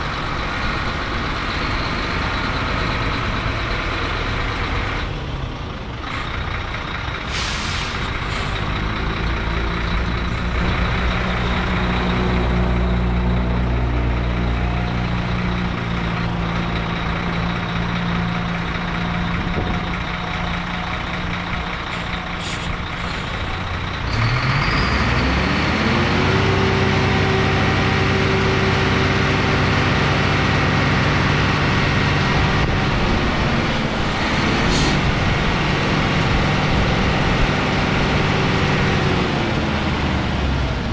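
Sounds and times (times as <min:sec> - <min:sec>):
diesel truck engine idling: 0:00.0 - 0:40.9
air hissing: 0:07.3 - 0:08.6
engine revving: 0:07.3 - 0:40.9.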